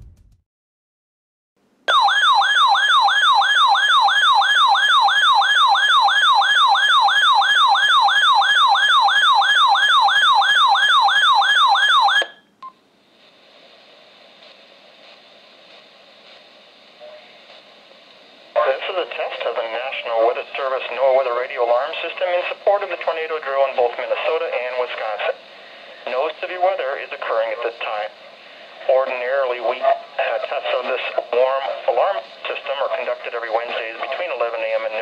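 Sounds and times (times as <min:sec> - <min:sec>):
faint radio hiss: 0:12.6 - 0:35.0
weather radio alert warble: 0:18.6 - 0:35.0.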